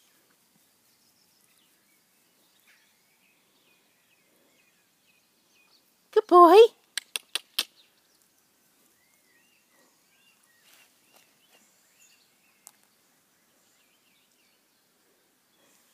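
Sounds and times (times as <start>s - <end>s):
faint birdsong chirps: 0.0s - 15.9s
sharp click: 6.9s - 7.7s.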